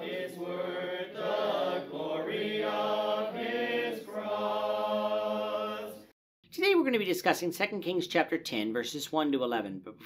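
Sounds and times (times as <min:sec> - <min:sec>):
choir singing a cappella: 0:00.0 - 0:06.1.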